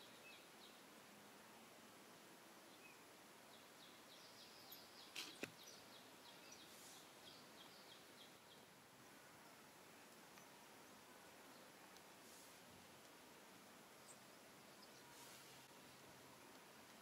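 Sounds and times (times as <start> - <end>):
faint high chirp: 3.6 - 8.7, 14.0 - 15.8.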